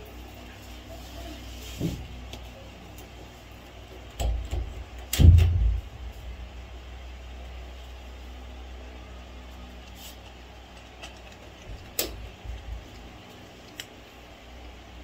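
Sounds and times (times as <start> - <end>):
steady low hum: 0.0 - 15.0
cat crunching dry kibble: 10.2 - 14.1.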